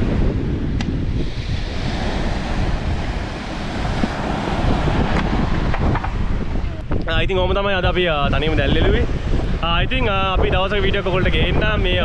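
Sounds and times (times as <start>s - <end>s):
surf breaking on beach: 0.0s - 6.9s
wind buffeting microphone: 0.0s - 12.0s.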